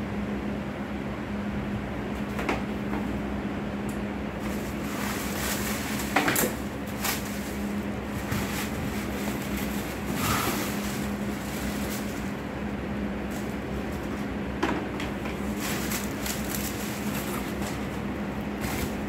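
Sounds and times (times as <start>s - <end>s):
steady low hum: 0.0s - 19.0s
cardboard rustling: 4.4s - 12.4s, 15.3s - 18.0s
plastic wrapping crinkling: 4.4s - 12.5s, 13.3s - 14.1s, 15.3s - 19.0s.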